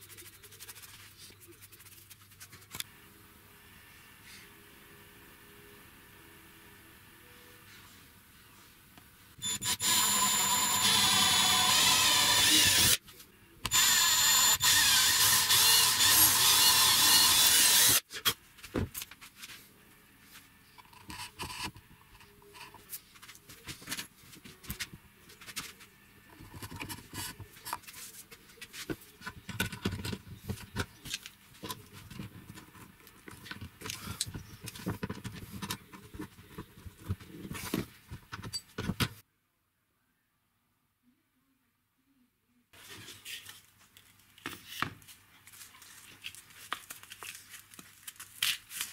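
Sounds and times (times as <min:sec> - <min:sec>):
electric drill whining: 0:09.4 - 0:13.0, 0:13.7 - 0:18.0.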